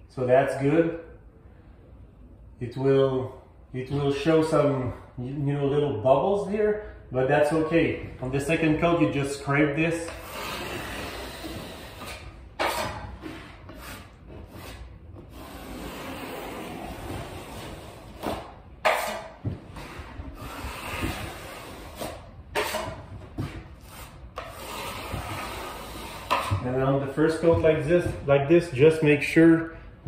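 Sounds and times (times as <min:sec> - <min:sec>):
taping knife scraping drywall: 0:10.0 - 0:26.7.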